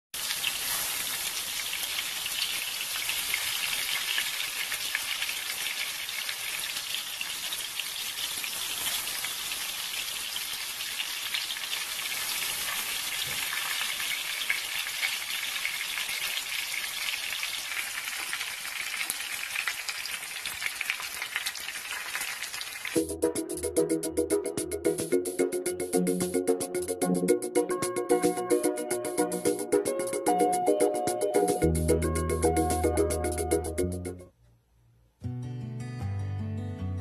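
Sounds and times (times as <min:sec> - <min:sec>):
fish sizzling in hot oil: 0:00.2 - 0:23.0.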